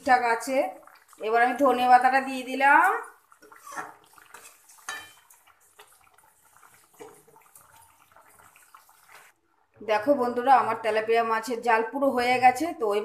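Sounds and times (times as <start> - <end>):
spatula scraping a metal pan: 3.4 - 5.9.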